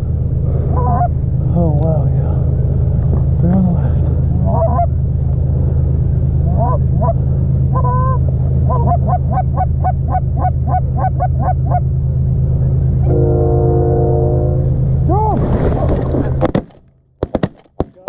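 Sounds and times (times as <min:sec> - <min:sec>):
steady low rumble: 0:00.0 - 0:17.3
goose honks and clucks: 0:00.7 - 0:01.2, 0:04.4 - 0:04.9, 0:06.4 - 0:11.9.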